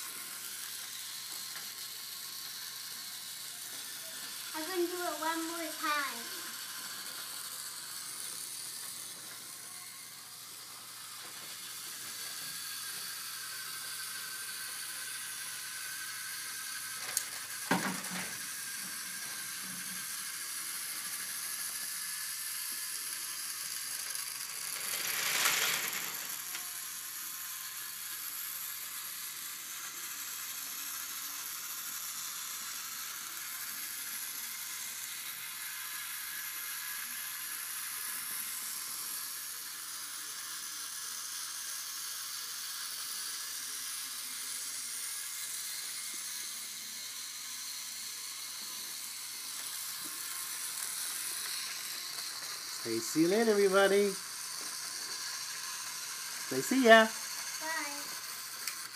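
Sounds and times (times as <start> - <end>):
toy train motor whirring: 0.0 - 58.9.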